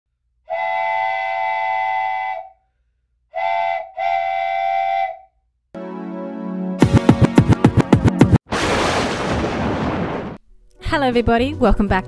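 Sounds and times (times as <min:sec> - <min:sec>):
steam train whistle: 0:00.5 - 0:02.6, 0:03.3 - 0:05.3.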